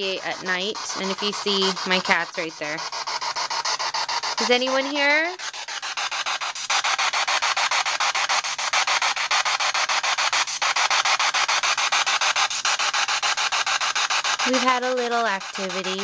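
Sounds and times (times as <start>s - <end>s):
pulsing radio static: 4.4s - 6.3s, 14.4s - 16.0s.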